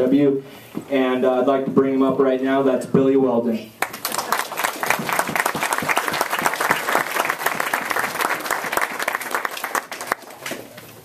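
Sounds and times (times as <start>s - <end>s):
audience applauding: 3.8s - 10.8s.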